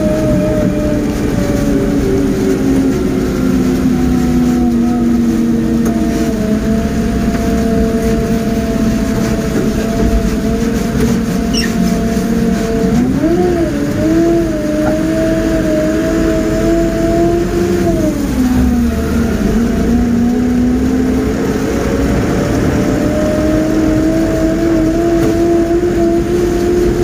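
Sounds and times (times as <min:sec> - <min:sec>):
crane engine droning: 0:00.0 - 0:27.0.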